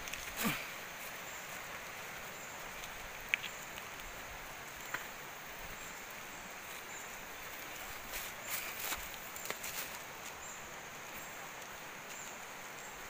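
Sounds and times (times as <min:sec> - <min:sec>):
forest riverside ambience hiss: 0:00.0 - 0:13.0.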